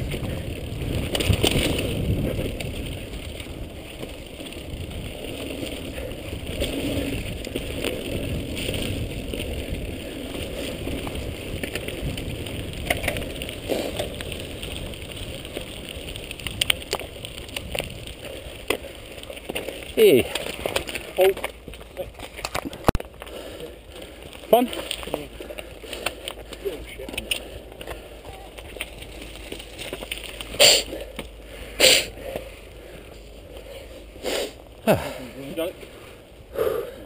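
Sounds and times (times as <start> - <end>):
wind on microphone: 0.0 - 18.7
bike rattling: 0.0 - 37.0
bike tyre rumble: 0.0 - 37.0.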